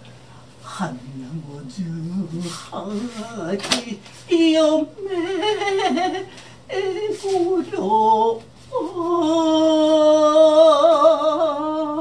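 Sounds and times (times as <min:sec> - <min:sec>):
woman singing unaccompanied: 0:00.6 - 0:12.0.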